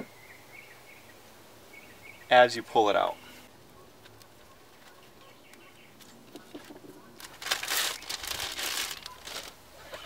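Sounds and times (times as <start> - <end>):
air filters rustling and crinkling: 6.0 - 10.0.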